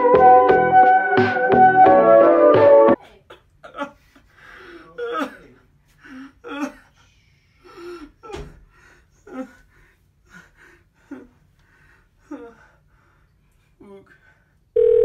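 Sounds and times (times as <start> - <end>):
man sobbing: 3.2 - 12.9.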